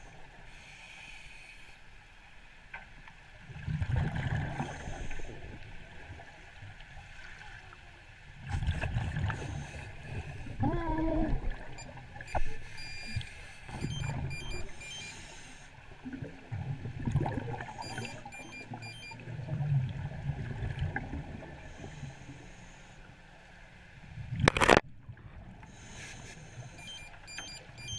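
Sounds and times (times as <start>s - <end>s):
underwater sloshing and gurgling: 0.0s - 27.9s.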